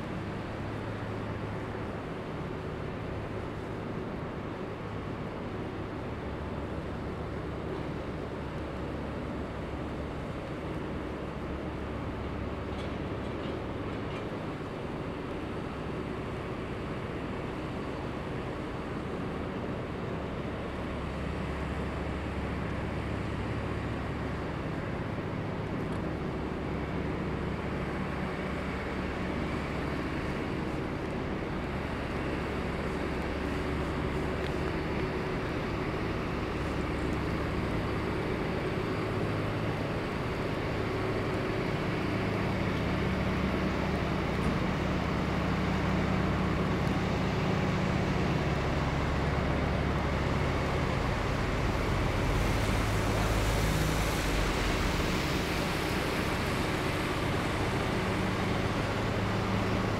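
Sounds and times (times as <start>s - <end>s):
road noise: 15.0s - 59.9s
vehicle engines humming: 31.6s - 59.9s.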